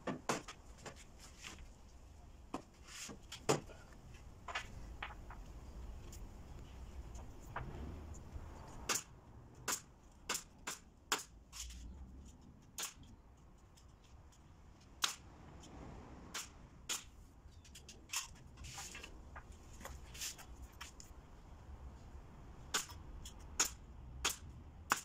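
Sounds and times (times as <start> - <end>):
nail gun firing into wood: 23.6 - 25.0.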